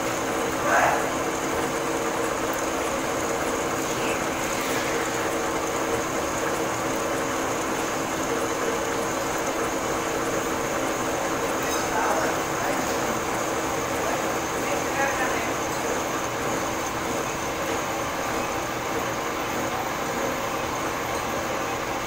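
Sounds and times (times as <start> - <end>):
metal lathe whirring: 0.0 - 22.0.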